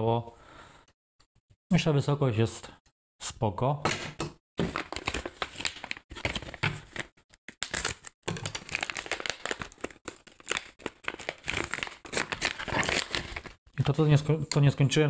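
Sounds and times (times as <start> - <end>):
plastic bag crinkling: 7.6 - 13.6.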